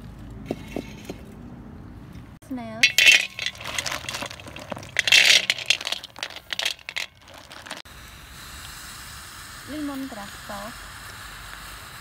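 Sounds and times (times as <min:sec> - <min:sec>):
snail shells clattering on metal: 0:02.8 - 0:07.9.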